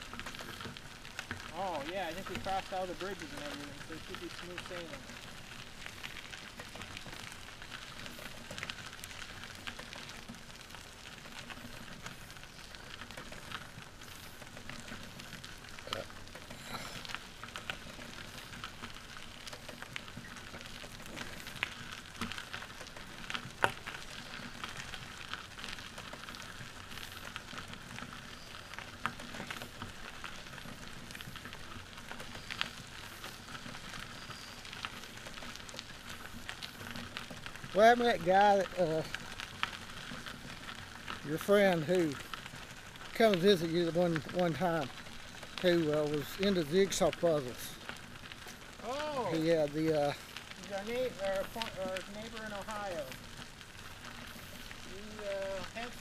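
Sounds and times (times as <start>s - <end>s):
tricycle tyres rolling on gravel: 0.0s - 56.0s.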